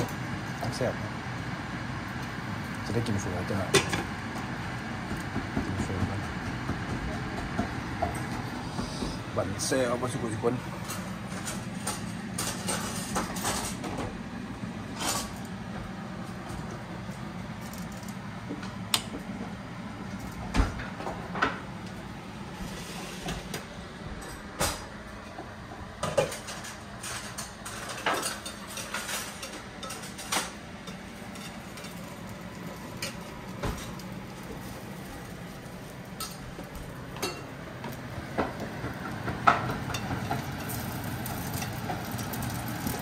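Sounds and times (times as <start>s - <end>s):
steady low hum: 0.0s - 43.0s
dishes and utensils clinking: 26.0s - 32.1s, 37.2s - 37.6s, 39.3s - 40.8s.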